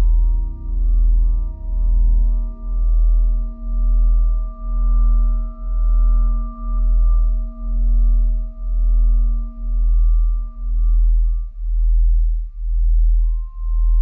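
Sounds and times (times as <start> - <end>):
deep pulsing low drone: 0.0 - 14.0
sustained pure tones: 0.0 - 14.0.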